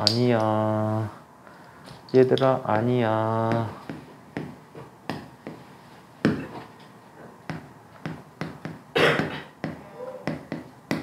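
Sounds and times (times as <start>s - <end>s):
chalk tapping on a board: 3.5s - 5.6s, 7.5s - 11.0s.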